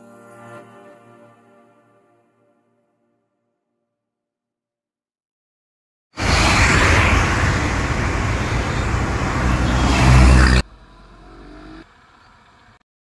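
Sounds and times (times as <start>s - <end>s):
car passing close: 6.2s - 12.8s
road traffic noise: 6.2s - 12.8s.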